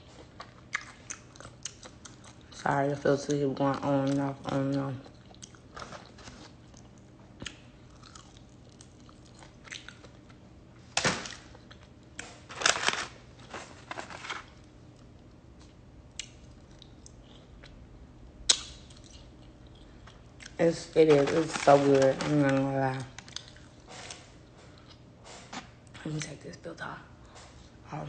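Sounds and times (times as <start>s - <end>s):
chewing crunchy food: 0.0s - 3.4s, 4.0s - 10.4s, 11.3s - 13.5s, 14.1s - 17.8s, 18.5s - 20.6s, 23.0s - 25.1s.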